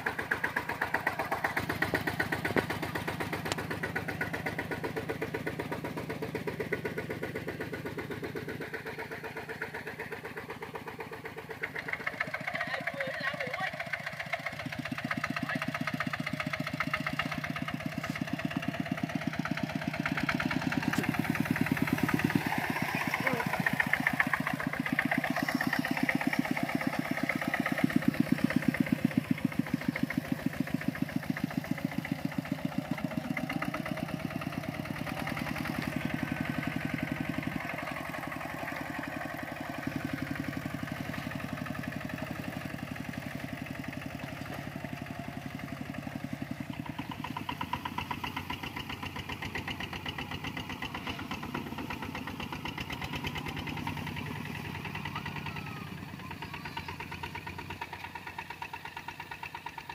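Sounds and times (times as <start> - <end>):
walking tractor diesel engine chugging: 0.0 - 59.9.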